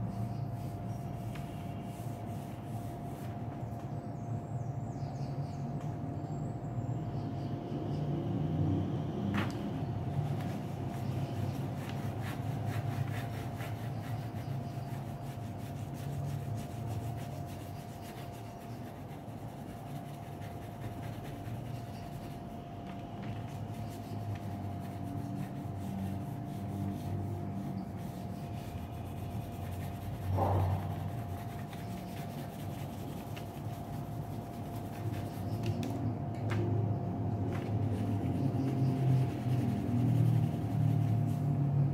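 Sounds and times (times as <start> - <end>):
steady background hum: 0.0 - 41.9
pencil scratching on paper: 10.2 - 22.6, 23.4 - 35.7, 37.8 - 41.6.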